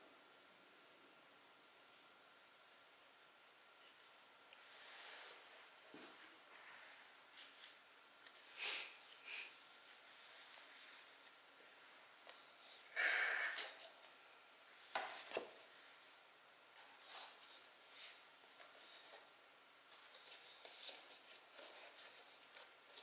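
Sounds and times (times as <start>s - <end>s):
soft rustles and ticks: 9.8s - 11.4s.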